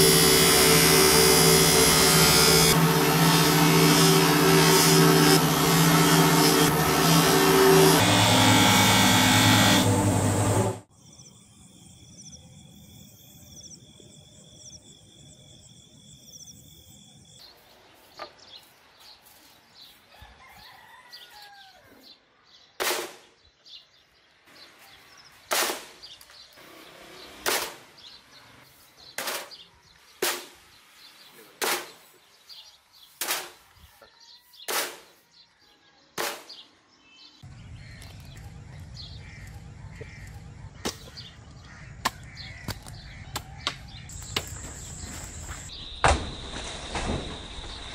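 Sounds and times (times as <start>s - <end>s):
machete chopping coconut: 27.5s - 27.8s, 31.6s - 32.0s, 34.7s - 35.1s, 36.2s - 36.6s.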